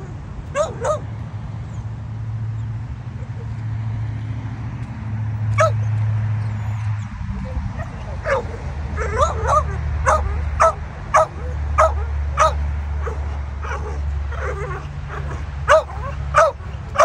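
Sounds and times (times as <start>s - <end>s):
dog barking and yipping: 0.0s - 1.1s, 5.5s - 6.0s, 6.6s - 17.0s.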